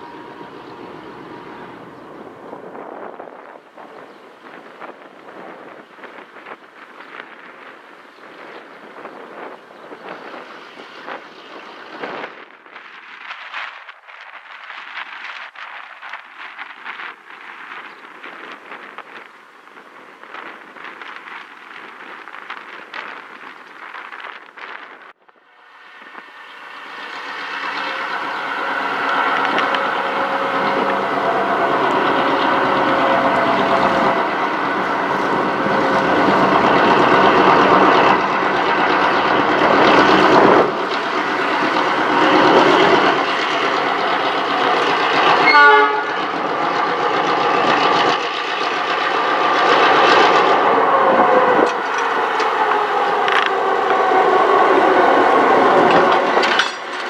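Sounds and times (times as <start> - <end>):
diesel locomotive engines running: 0.0 - 12.8, 16.2 - 57.0
wheel and rail noise: 0.0 - 57.0
high chattering squeal: 25.7 - 48.5.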